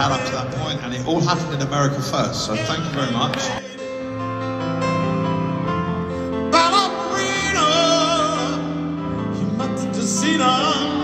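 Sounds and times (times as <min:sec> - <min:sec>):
piano and keyboard chords: 0:00.0 - 0:11.0
person singing with vibrato: 0:06.1 - 0:11.0.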